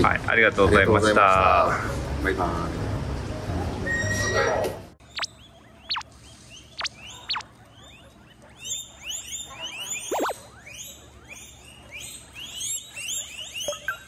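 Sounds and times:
guinea pigs squealing: 3.8 - 14.0.

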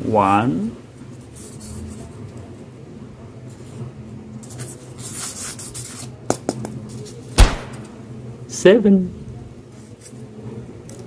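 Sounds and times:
loud thump: 7.4 - 7.9.

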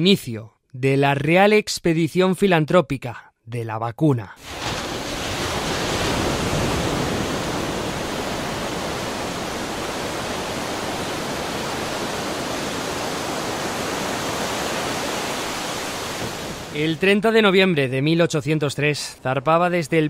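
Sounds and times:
sea surf rushing: 4.4 - 17.4.

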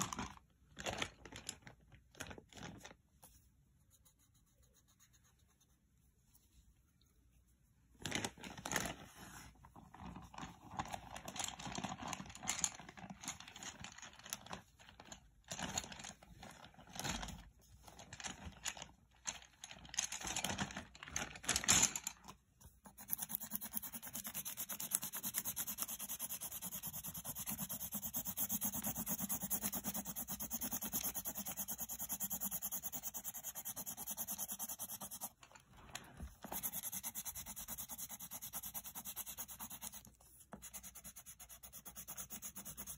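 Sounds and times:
pencil shading on paper: 3.8 - 5.8, 22.8 - 35.4, 36.5 - 42.9.

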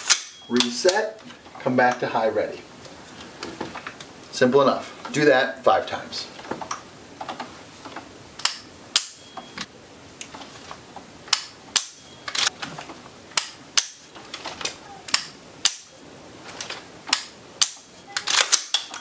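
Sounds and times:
charging handle racking: 16.6 - 19.0.

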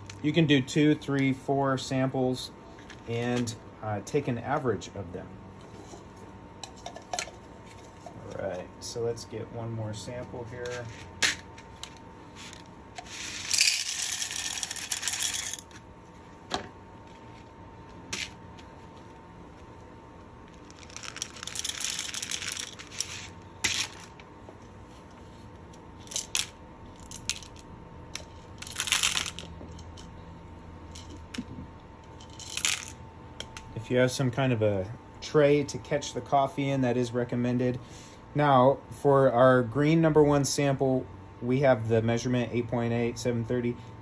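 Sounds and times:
coffee beans pouring into plastic hopper: 13.1 - 15.6.

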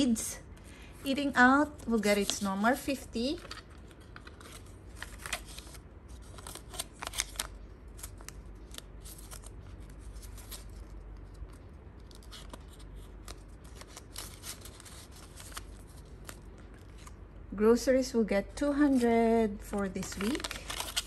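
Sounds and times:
paper rustling and snapping: 3.4 - 17.2, 19.7 - 21.0.

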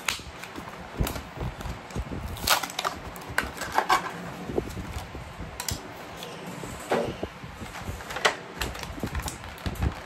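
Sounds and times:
cardboard packaging rustling and scraping: 0.3 - 5.3.

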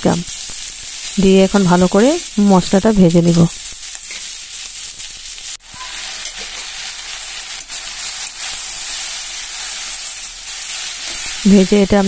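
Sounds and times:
vegetables sizzling in oil: 0.0 - 12.0
metal spatula stirring: 3.6 - 11.6.

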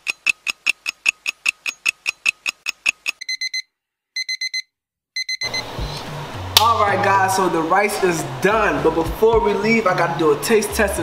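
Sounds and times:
timer ticking: 0.0 - 5.6
alarm beeping: 3.2 - 5.7.

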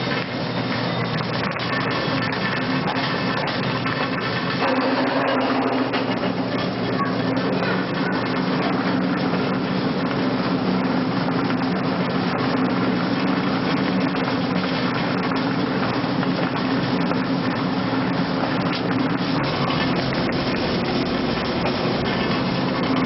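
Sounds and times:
low motor hum: 0.0 - 23.0
pellet mill grinding: 0.0 - 23.0.

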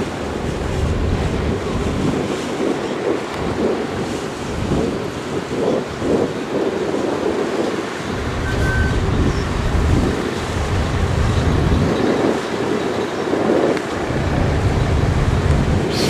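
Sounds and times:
steady noise haze: 13.8 - 16.0.

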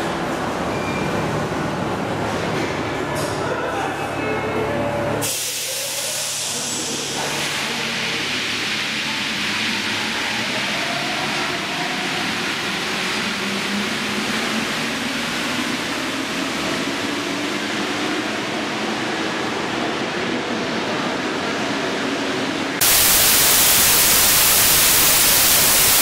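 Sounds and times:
metro platform rushing noise: 0.0 - 26.0
television static hiss: 22.8 - 26.0.

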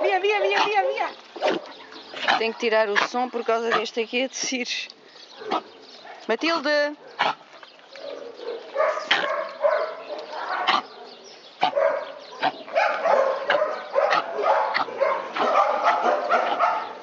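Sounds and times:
dogs whining and yipping: 8.0 - 17.0.

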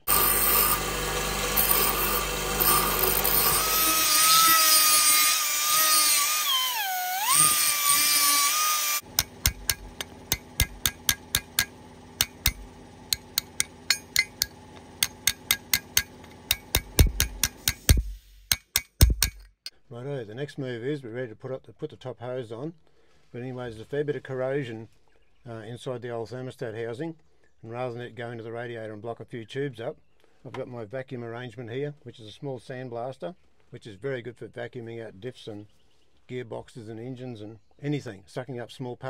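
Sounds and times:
die grinder whining on metal pipe: 0.0 - 17.4
hammer tapping on metal: 9.1 - 19.5.

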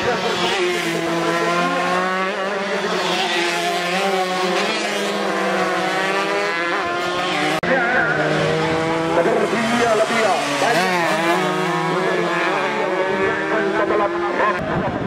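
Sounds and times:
motorcycles revving: 0.0 - 15.0.

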